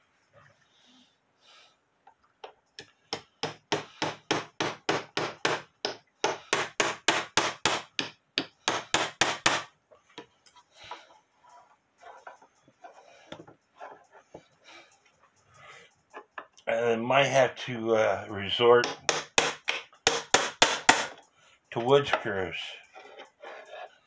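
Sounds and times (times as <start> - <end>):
hammer tapping a nail into wood: 2.8 - 9.7, 18.8 - 21.2
faint handling noises: 9.8 - 16.6.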